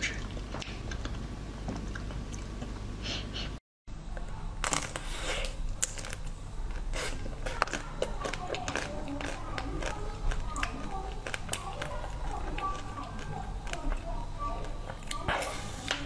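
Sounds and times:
crunching frozen chocolate shell: 4.6 - 15.2
soft chewing: 4.8 - 16.0.

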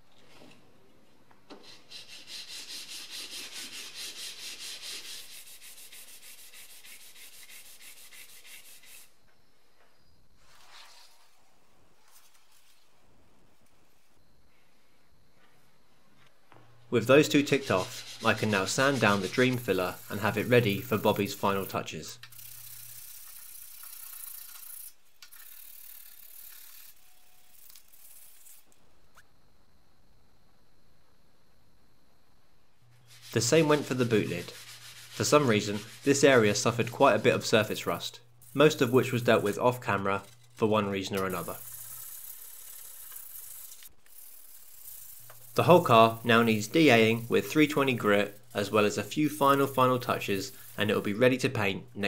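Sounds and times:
sandpaper rubbing on filler: 1.6 - 9.2, 17.0 - 24.5, 33.0 - 40.0, 40.8 - 51.7.

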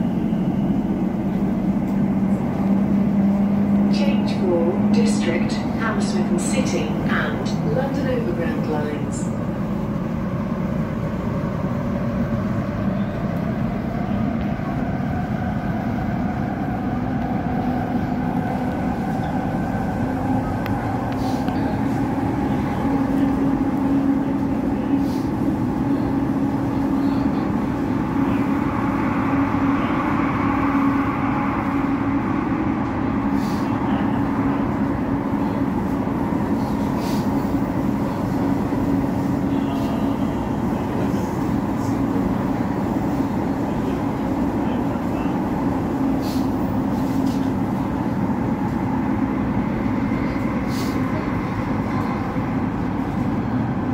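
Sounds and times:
train rumble: 0.0 - 53.9.

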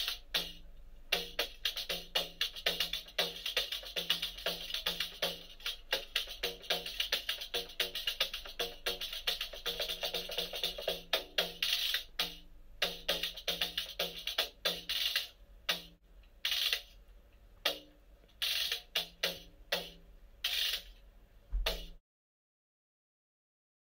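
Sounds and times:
hand drum playing: 0.0 - 16.0, 21.6 - 22.0.

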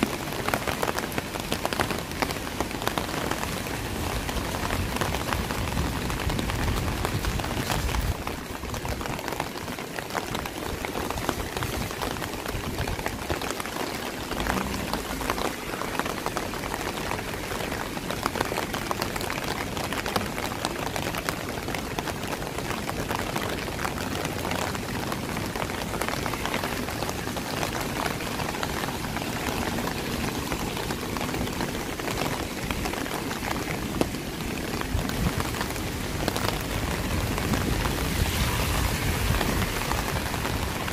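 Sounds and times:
steady rain falling: 0.0 - 40.9.

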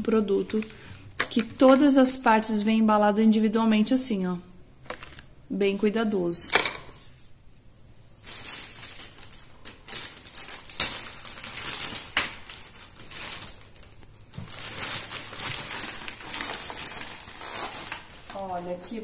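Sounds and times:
plastic bag crinkling and rustling: 0.0 - 2.6, 4.8 - 5.4, 8.1 - 19.0.

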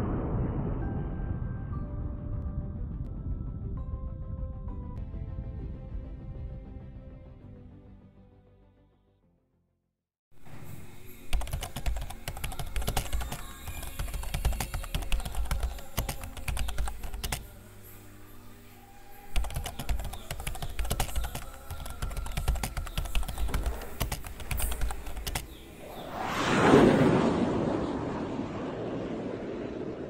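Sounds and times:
rapid irregular clicking: 11.3 - 17.5, 19.3 - 25.6.

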